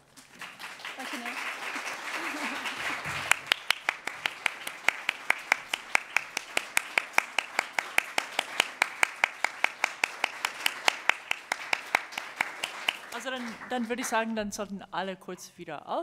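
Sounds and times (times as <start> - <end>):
loud even hand clapping: 0.0 - 14.3
audience applauding: 0.0 - 14.4.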